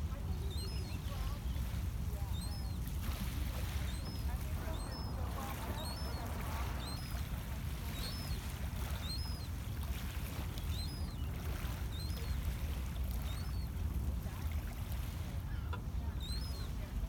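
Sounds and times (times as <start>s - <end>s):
birds chirping: 0.3s - 2.8s, 3.8s - 9.8s, 10.5s - 12.4s, 13.1s - 13.7s, 15.6s - 17.0s.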